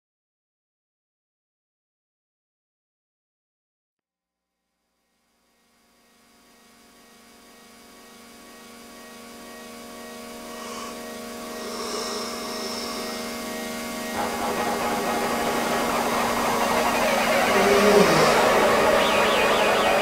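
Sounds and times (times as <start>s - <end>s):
droning hum with overtones: 5.2s - 20.0s
hissing rush: 10.5s - 20.0s.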